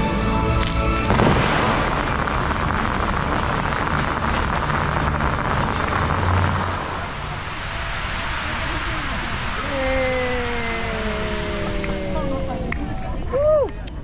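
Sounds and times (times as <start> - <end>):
music: 0.0 - 3.4
hissing water spray: 1.5 - 12.8
fountain jets rushing water: 1.6 - 14.0.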